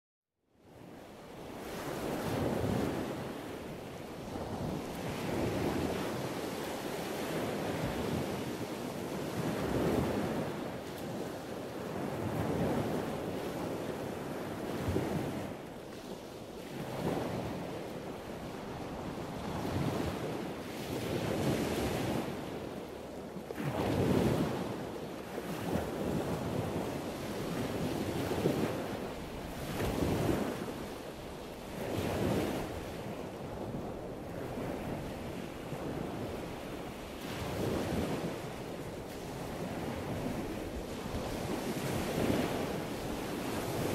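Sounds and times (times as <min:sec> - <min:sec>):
wind: 0:00.4 - 0:43.9
sea surf rushing: 0:34.5 - 0:43.9.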